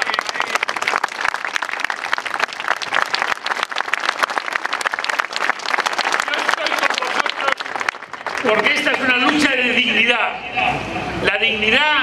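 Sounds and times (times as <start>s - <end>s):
crowd applauding: 0.0s - 9.6s.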